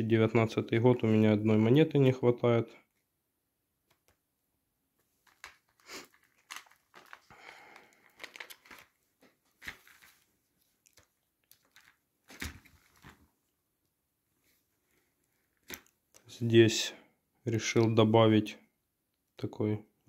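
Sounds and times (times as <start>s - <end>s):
plastic sheets crinkling and rustling: 5.0s - 13.4s, 14.9s - 16.0s.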